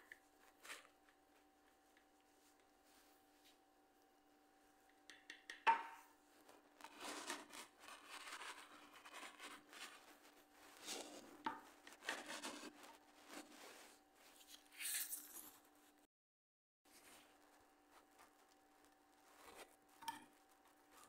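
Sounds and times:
knife rasping through crust: 6.8s - 10.1s.

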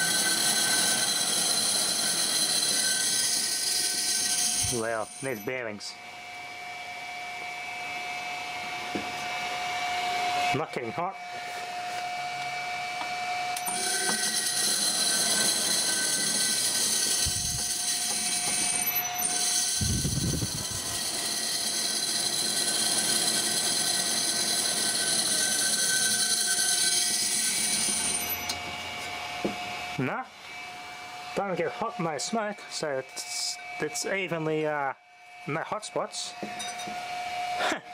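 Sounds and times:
electric motor whining: 0.0s - 5.5s, 11.5s - 31.9s.

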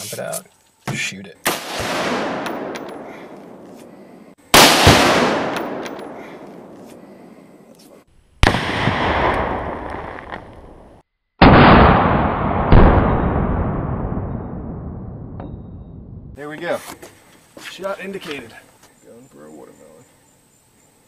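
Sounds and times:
rifle fire: 1.4s - 3.0s, 4.5s - 6.8s, 8.4s - 10.8s, 11.4s - 15.2s
explosive booms with echo: 1.5s - 2.7s, 4.6s - 6.7s, 8.4s - 10.4s, 11.4s - 16.4s.

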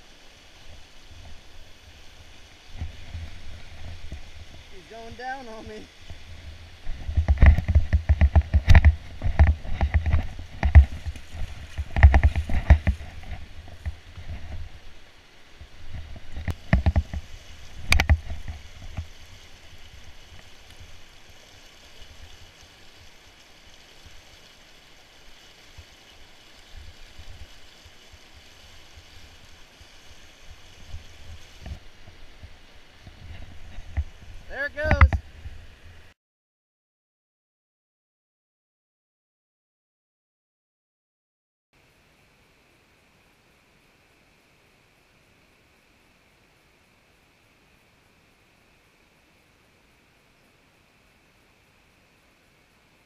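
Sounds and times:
river rushing over whitewater: 0.0s - 36.1s
rumbling knocks on microphone: 6.8s - 14.6s.

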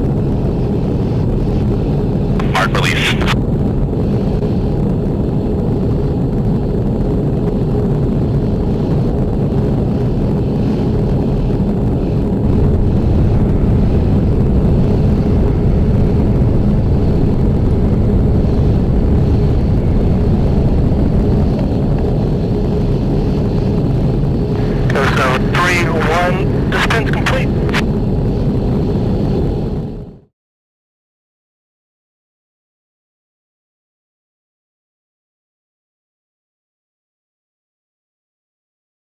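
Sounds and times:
jet aircraft roar: 0.1s - 30.0s
faint steady hum: 0.4s - 4.6s, 9.8s - 29.4s.

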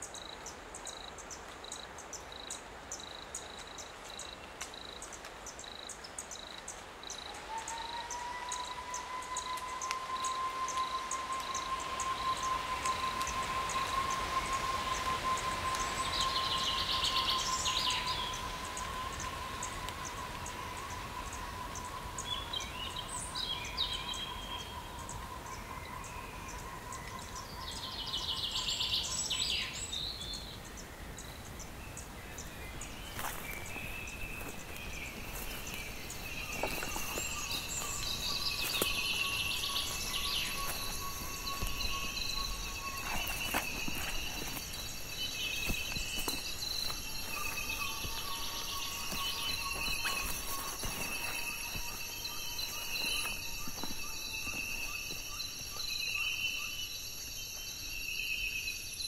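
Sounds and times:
background hiss: 0.0s - 59.0s
insects droning: 0.0s - 59.0s
birds trilling: 31.5s - 56.8s.

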